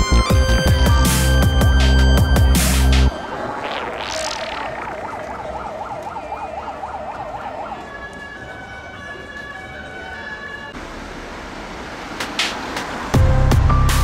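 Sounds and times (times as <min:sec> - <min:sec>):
emergency siren wailing: 0:03.1 - 0:10.8.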